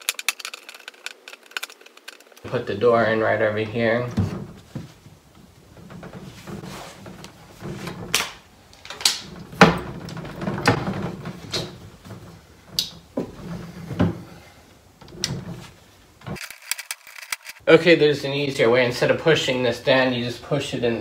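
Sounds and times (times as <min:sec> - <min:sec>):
handling rustle: 0:00.0 - 0:02.6, 0:15.1 - 0:17.6
cabinet door knocks and clicks: 0:09.4 - 0:11.8.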